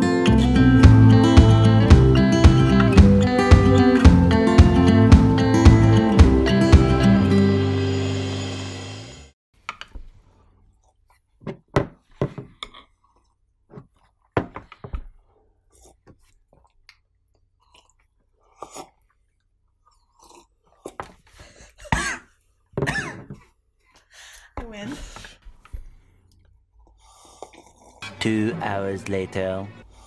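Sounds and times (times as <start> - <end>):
people slurping from mugs: 15.7 - 16.7, 17.6 - 19.2, 26.8 - 28.0
swallows and mouth noises: 15.7 - 21.3.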